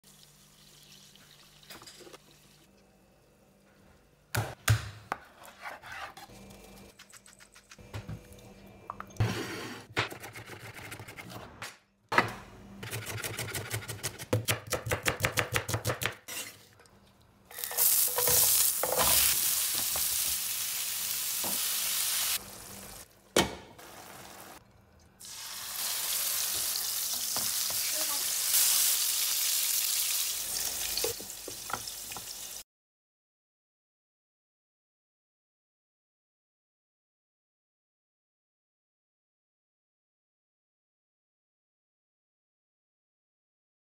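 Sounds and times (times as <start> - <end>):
knife chopping on wooden board: 12.8 - 16.2
food sizzling in frying pan: 17.5 - 23.0, 25.2 - 32.6.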